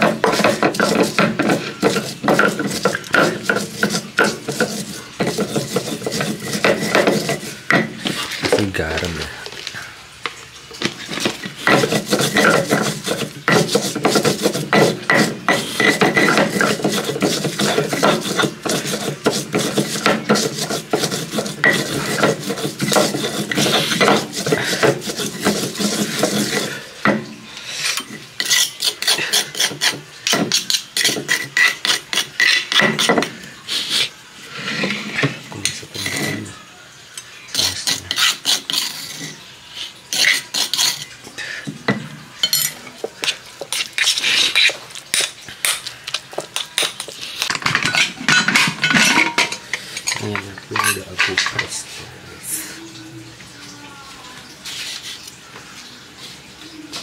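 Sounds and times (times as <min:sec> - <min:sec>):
stone pestle grinding on stone: 0:00.0 - 0:08.8, 0:10.8 - 0:27.2, 0:27.9 - 0:33.3, 0:34.6 - 0:36.5, 0:37.5 - 0:39.4, 0:40.1 - 0:41.2, 0:42.4 - 0:51.6.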